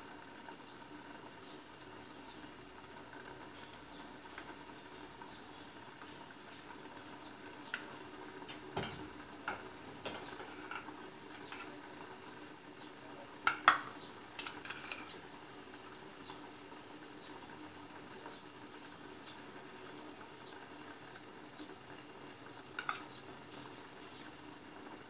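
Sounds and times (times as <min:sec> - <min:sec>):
spoon clinking against bowl: 0:13.5 - 0:15.1, 0:22.8 - 0:23.1.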